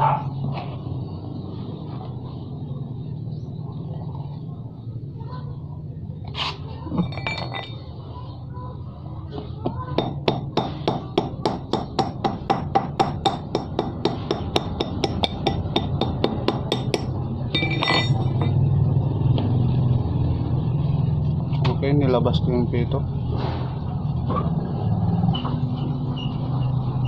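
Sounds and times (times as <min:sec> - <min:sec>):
metal-on-metal tapping: 0:07.0 - 0:07.8, 0:09.6 - 0:18.6.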